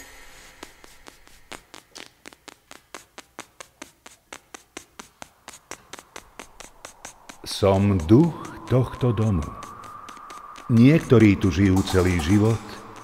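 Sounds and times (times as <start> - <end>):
soft quick tapping: 0.8 - 8.8.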